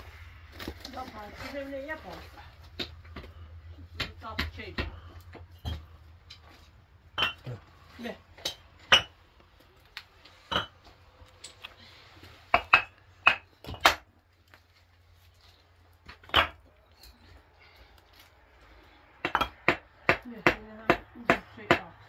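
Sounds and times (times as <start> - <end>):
hammer tapping cinder block: 19.2 - 21.9.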